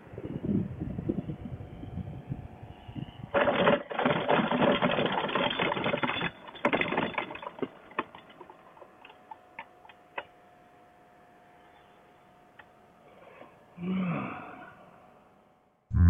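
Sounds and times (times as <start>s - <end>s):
trike frame and wheels rattling: 3.3s - 9.7s.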